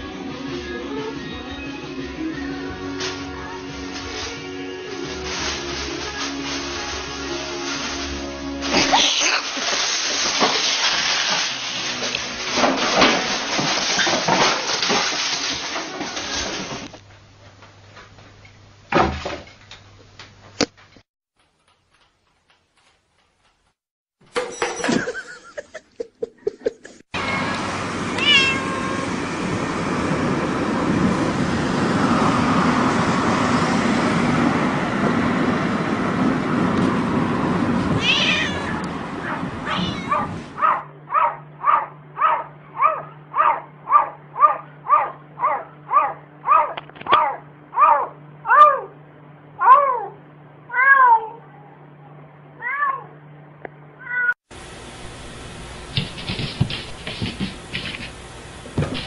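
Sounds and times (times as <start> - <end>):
loud rustling noise: 2.6 - 17.9, 54.6 - 59.0
cat meowing: 27.2 - 29.1, 38.0 - 40.4, 49.6 - 51.7, 52.6 - 53.1, 54.0 - 54.4.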